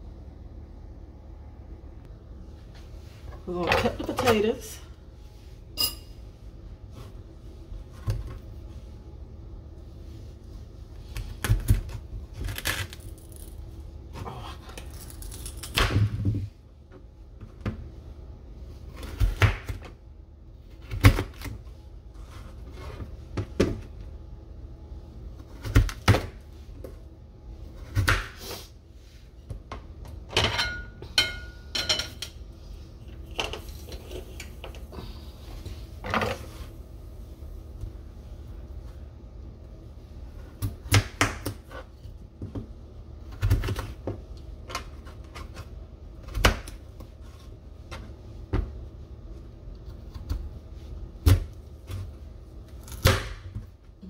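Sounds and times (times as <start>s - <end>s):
steady low hum: 0.0s - 54.0s.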